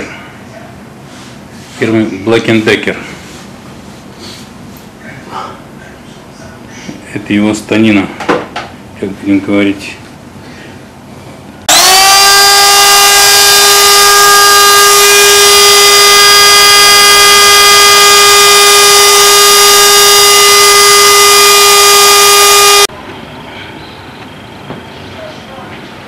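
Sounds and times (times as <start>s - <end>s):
electric router motor whining: 11.7s - 22.9s.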